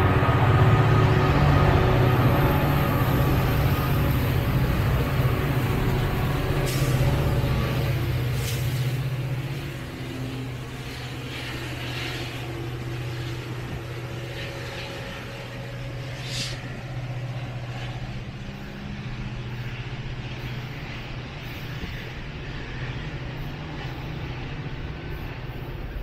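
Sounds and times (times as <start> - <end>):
air hiss: 6.6 - 7.2, 8.3 - 9.7, 16.0 - 16.7.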